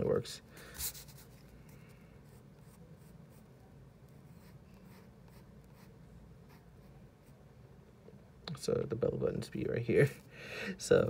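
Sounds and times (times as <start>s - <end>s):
low room hum: 0.0s - 11.0s
pencil scratching on paper: 0.8s - 1.5s, 2.2s - 3.5s, 4.1s - 7.4s.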